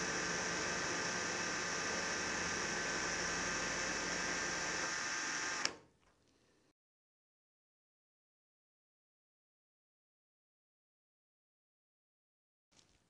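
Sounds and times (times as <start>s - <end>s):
cordless drill whirring: 0.0s - 5.8s
drill stopping click: 0.0s - 5.8s.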